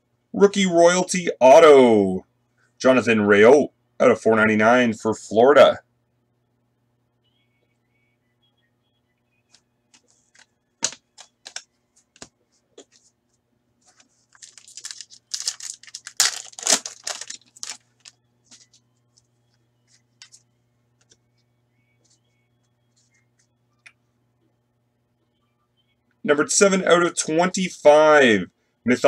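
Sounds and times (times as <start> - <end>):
cards clicking: 9.9 - 12.3
foil wrapper tearing and crinkling: 14.3 - 18.2.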